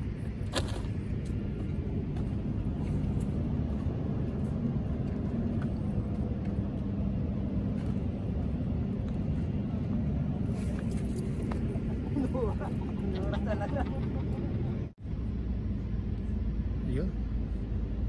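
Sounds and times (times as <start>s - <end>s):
low outdoor rumble: 0.0s - 18.0s.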